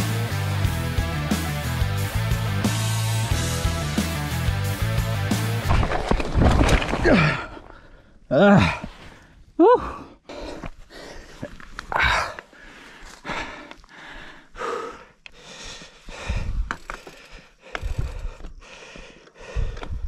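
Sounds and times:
person panting hard: 0:07.2 - 0:20.0.

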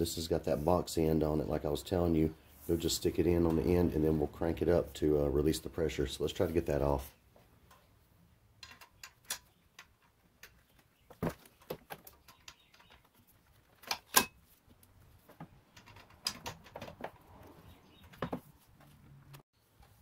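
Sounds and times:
metal tool clinking and tapping: 0:08.6 - 0:10.6, 0:13.8 - 0:14.4.

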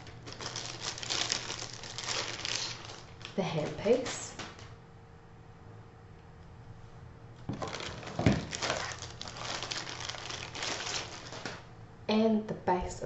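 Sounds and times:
plastic bag crinkling: 0:00.0 - 0:04.8, 0:07.5 - 0:11.7.

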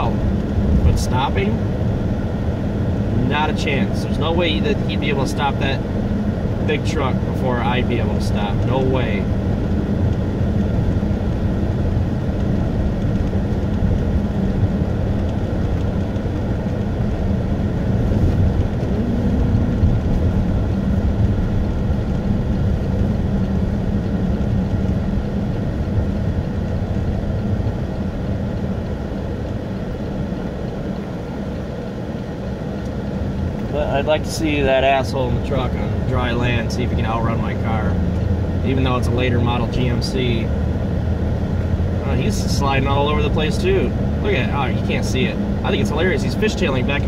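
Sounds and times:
car engine and tyre rumble: 0:00.0 - 0:47.0.

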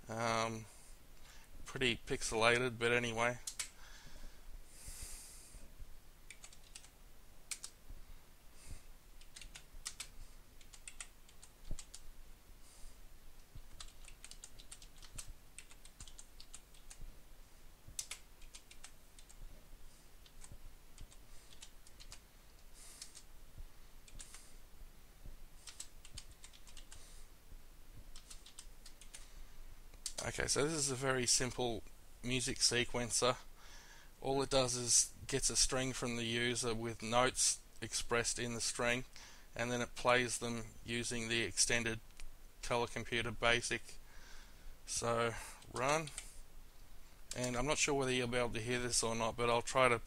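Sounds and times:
typing on computer keyboard: 0:03.4 - 0:03.7, 0:06.3 - 0:07.8, 0:09.2 - 0:12.0, 0:13.6 - 0:17.0, 0:17.9 - 0:19.4, 0:20.2 - 0:22.2, 0:23.0 - 0:23.3, 0:24.0 - 0:24.4, 0:25.6 - 0:27.0, 0:28.1 - 0:29.3, 0:30.0 - 0:30.3.

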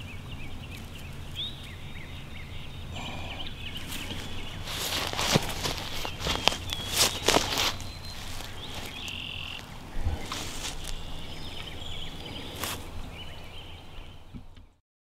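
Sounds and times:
high chirping animal calls: 0:00.0 - 0:14.3
wind rumble on microphone: 0:03.5 - 0:14.7
soft steps in grass: 0:03.7 - 0:13.0.

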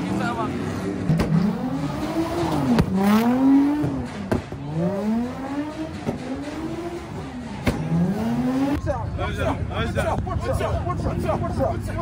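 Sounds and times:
car engine revving hard: 0:00.0 - 0:09.5.

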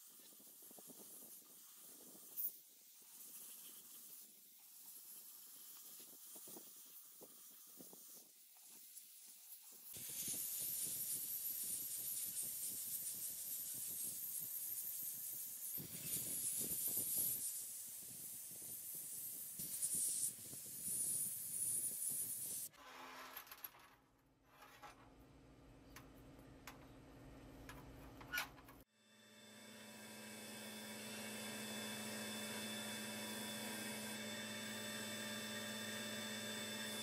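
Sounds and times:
sandblasting gun hissing: 0:07.4 - 0:22.7.

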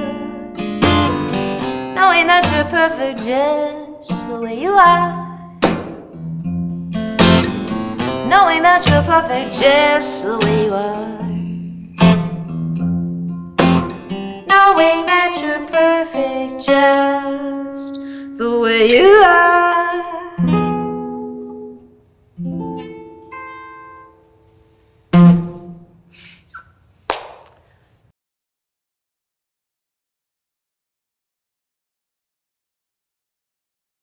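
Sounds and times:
fingerpicked acoustic guitar: 0:00.0 - 0:26.2
short knock: 0:05.6 - 0:06.2.

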